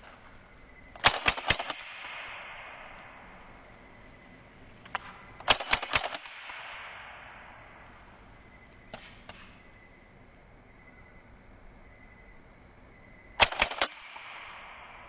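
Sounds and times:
machine pistol gunshots: 0:01.0 - 0:03.4, 0:04.9 - 0:07.8, 0:13.4 - 0:15.0
gunfire echo: 0:01.0 - 0:03.6, 0:04.9 - 0:08.2, 0:13.4 - 0:15.0.

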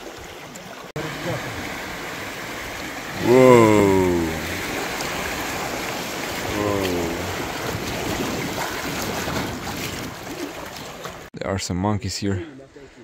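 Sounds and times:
rushing river water: 0:00.0 - 0:11.3
person calling wordlessly: 0:03.2 - 0:04.6, 0:06.5 - 0:07.4.

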